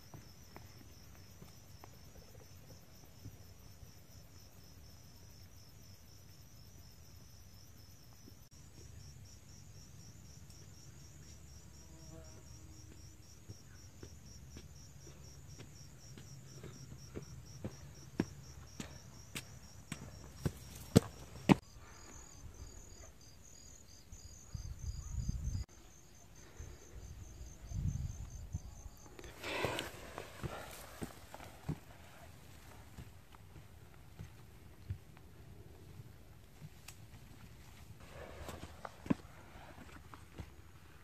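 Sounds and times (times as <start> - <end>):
footsteps on stone steps: 0.0 - 2.3, 12.4 - 21.6, 29.2 - 41.0
insects chirping: 0.0 - 36.4.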